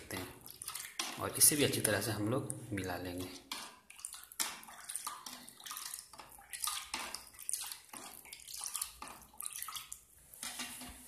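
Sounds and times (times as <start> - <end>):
spoon scraping plastic bowl: 0.0 - 1.9, 3.1 - 11.0
spoon stirring liquid in bowl: 0.0 - 11.0.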